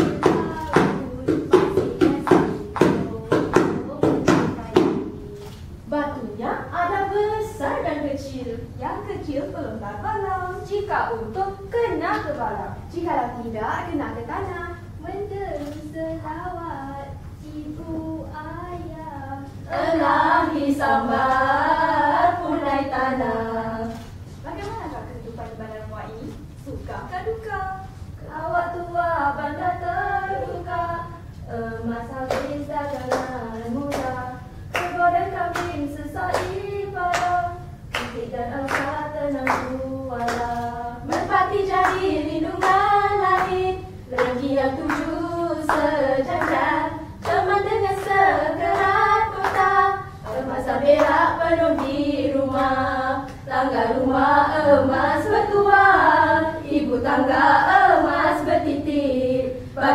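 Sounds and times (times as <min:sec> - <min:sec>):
women singing together: 0:00.0 - 0:05.5, 0:06.4 - 0:13.0, 0:13.6 - 0:24.2, 0:27.2 - 0:59.9
sharp hand claps: 0:33.9 - 0:35.7, 0:36.3 - 0:37.3, 0:37.9 - 0:45.1, 0:48.0 - 0:49.7.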